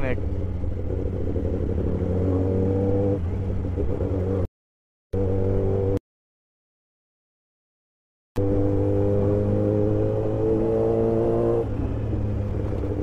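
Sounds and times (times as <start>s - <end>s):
motorcycle engine running: 0.0s - 4.5s.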